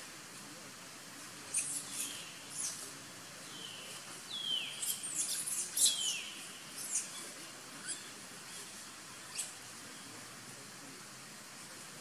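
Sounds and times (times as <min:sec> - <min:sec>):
outdoor hiss: 0:00.0 - 0:12.0
high-pitched animal chirps and squeaks: 0:01.5 - 0:02.8, 0:04.7 - 0:06.2, 0:06.8 - 0:08.6, 0:09.3 - 0:09.6.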